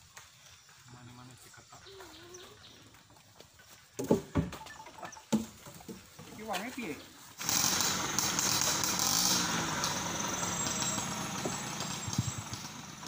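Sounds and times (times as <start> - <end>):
truck engine running: 7.4 - 13.0.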